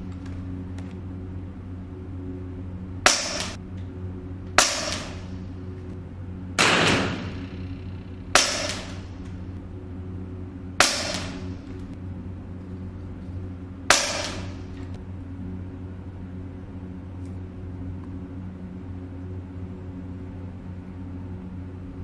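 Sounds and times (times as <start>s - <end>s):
steady low hum: 0.0s - 22.0s
air rifle shots: 3.0s - 3.6s, 4.6s - 5.5s, 6.6s - 9.6s, 10.8s - 12.0s, 13.9s - 15.0s.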